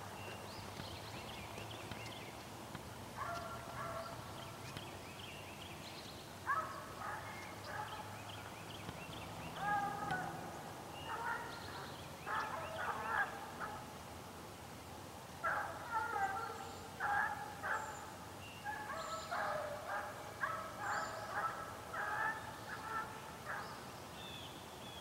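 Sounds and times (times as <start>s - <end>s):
hounds baying: 3.2s - 4.2s, 6.5s - 8.1s, 9.5s - 13.8s, 15.4s - 23.8s.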